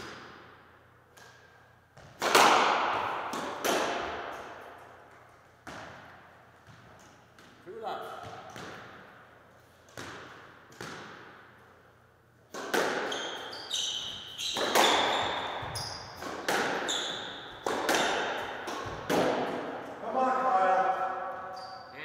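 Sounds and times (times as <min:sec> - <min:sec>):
squash ball hits echoing: 0:00.0 - 0:11.7, 0:12.5 - 0:21.6
shoes squeaking on floor: 0:13.0 - 0:18.2, 0:21.4 - 0:22.0.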